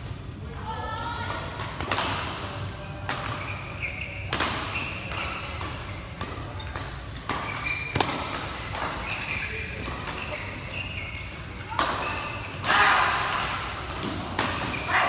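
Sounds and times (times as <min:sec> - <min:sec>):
shoes squeaking on court: 0:03.2 - 0:12.6
racket hitting shuttlecock: 0:04.3 - 0:10.4.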